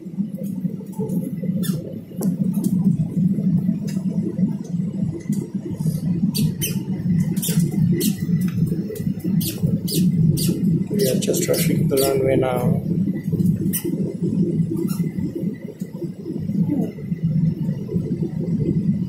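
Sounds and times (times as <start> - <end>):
low rumble of engines and airflow: 0.0 - 19.0
sharp clicks and ticks: 0.2 - 14.1.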